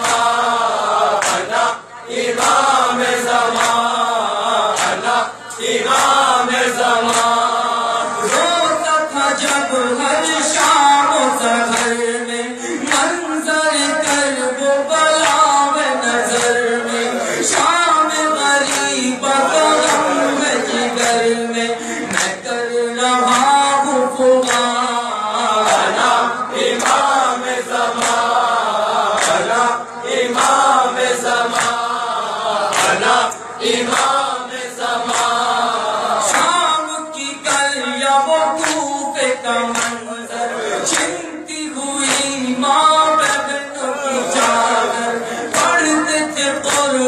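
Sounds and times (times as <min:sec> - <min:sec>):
man singing through microphone: 0:00.0 - 0:47.0
men singing in chorus: 0:00.0 - 0:47.0
hands slapping chests: 0:01.2 - 0:01.5, 0:03.5 - 0:03.8, 0:07.0 - 0:07.4, 0:22.0 - 0:22.4, 0:27.9 - 0:28.3, 0:29.2 - 0:29.5, 0:31.5 - 0:31.8, 0:32.7 - 0:34.2, 0:35.0 - 0:35.4, 0:39.7 - 0:40.0, 0:45.5 - 0:45.8.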